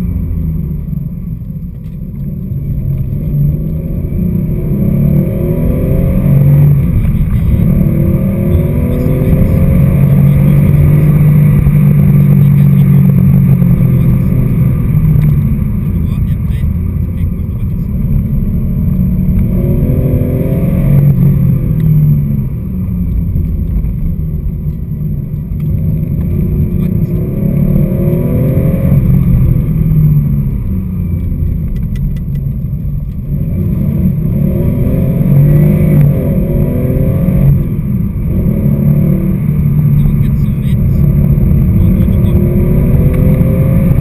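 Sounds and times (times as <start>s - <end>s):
car engine revving from inside: 2.4s - 16.4s, 17.0s - 44.0s.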